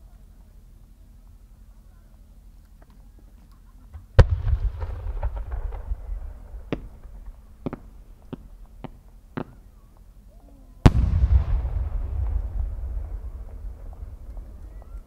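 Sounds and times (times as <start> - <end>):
short sharp firework pops: 4.2 - 9.6, 10.9 - 15.0
firework shell boom: 10.9 - 14.5.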